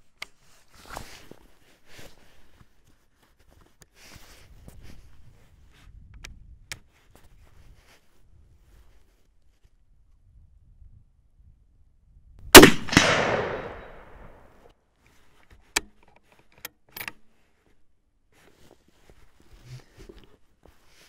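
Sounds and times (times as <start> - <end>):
rifle shot echoing: 12.5 - 14.5
rifle bolt clicks: 12.6 - 14.2.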